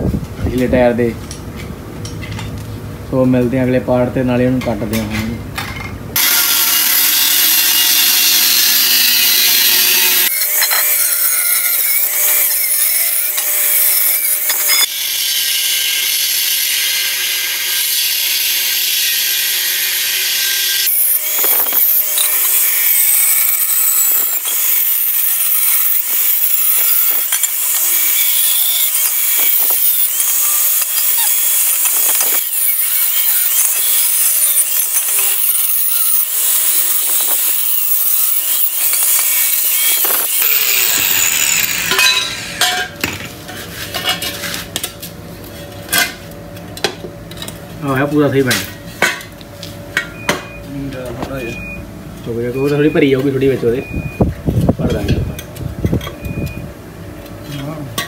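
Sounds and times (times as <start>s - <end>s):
angle grinder cutting steel: 6.2s - 44.4s.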